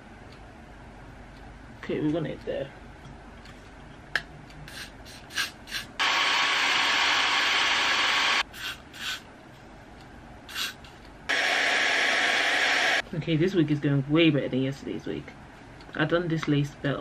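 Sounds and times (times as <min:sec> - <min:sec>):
hair dryer blowing: 0:06.0 - 0:08.4, 0:11.3 - 0:13.0.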